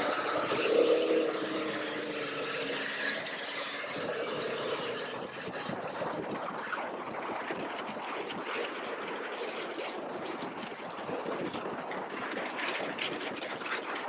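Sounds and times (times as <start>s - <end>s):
motorcycle engine: 0.0s - 5.4s
wind rushing over microphone: 0.0s - 14.0s.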